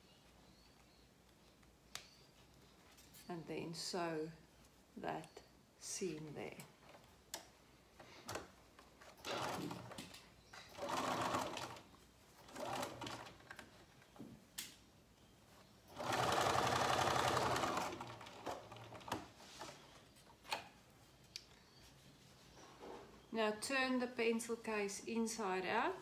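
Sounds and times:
sewing machine stitching: 0:09.1 - 0:11.8, 0:12.4 - 0:13.6, 0:15.9 - 0:19.4.

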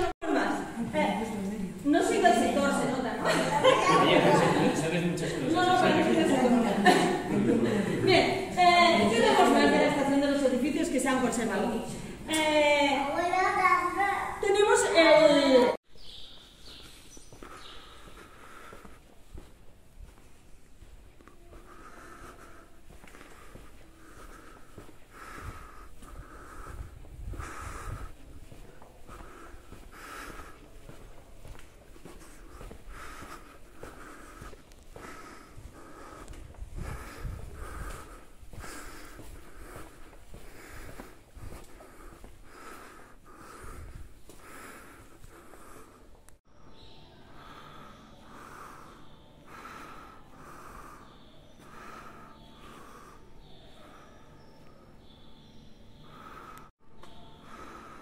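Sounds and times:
person breathing through nose: 0:17.4 - 0:19.2, 0:21.3 - 0:31.0, 0:32.2 - 0:46.3, 0:47.1 - 0:58.0.

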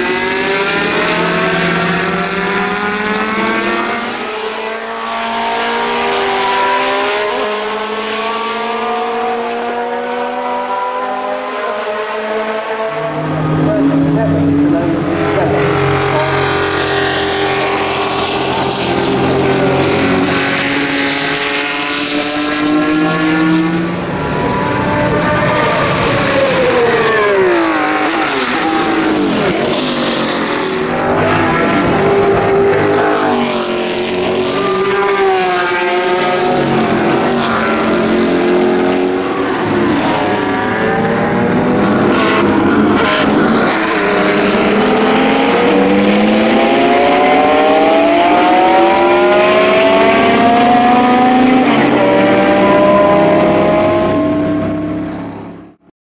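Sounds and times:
race car engines passing: 0:00.0 - 0:55.8.

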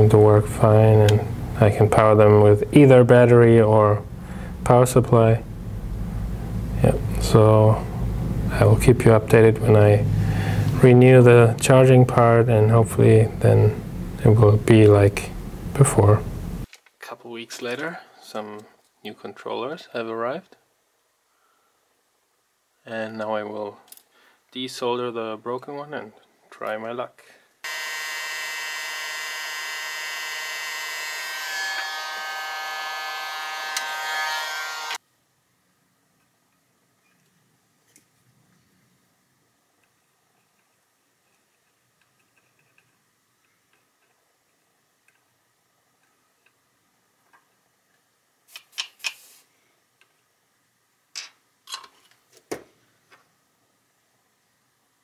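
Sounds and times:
hot-air blower hissing: 0:10.0 - 0:10.8
tools clicking and clattering: 0:51.2 - 0:52.2.

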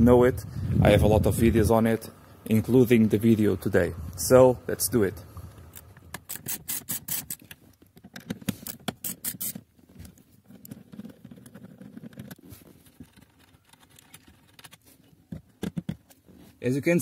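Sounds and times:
scraping and handling: 0:05.6 - 0:16.6
ratchet clicking: 0:06.2 - 0:07.5, 0:09.0 - 0:09.6.

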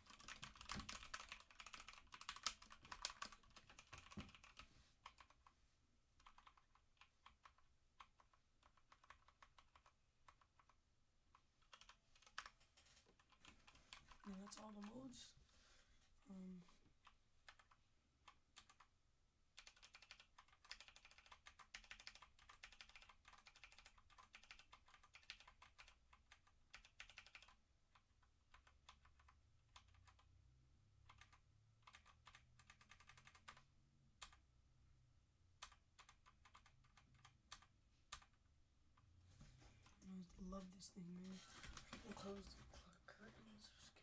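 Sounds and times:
mechanical keyboard typing: 0:00.0 - 0:05.5, 0:06.2 - 0:15.1, 0:17.0 - 0:18.9, 0:19.5 - 0:34.4, 0:35.6 - 0:38.4.

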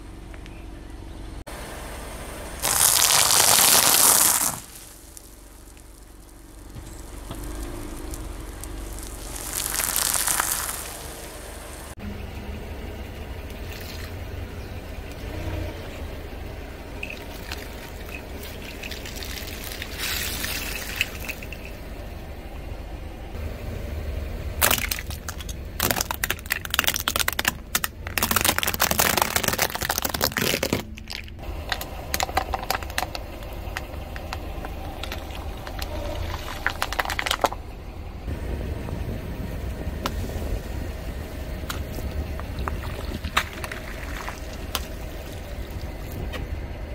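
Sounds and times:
steady low rumble: 0:00.0 - 0:46.9
liquid squelching and spilling: 0:02.6 - 0:12.0, 0:17.0 - 0:21.7, 0:32.1 - 0:37.6, 0:41.7 - 0:46.2
plastic cracking and snapping: 0:24.6 - 0:34.4.

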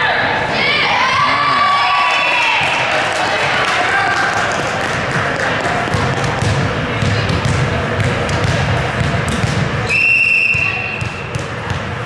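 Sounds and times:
echoing chatter of people: 0:00.0 - 0:12.0
volleyball bouncing on gym floor: 0:04.8 - 0:09.9, 0:10.5 - 0:12.0.

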